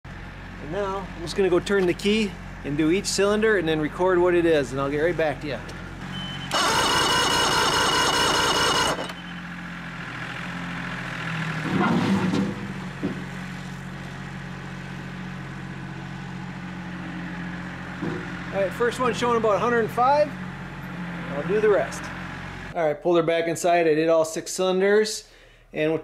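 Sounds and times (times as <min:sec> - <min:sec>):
outboard engine cranking: 0:06.5 - 0:09.2.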